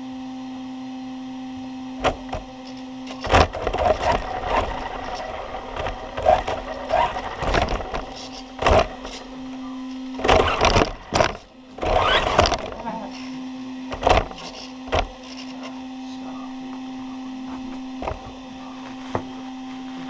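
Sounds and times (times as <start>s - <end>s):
rc car motor whirring: 2.0s - 13.3s, 13.9s - 15.6s.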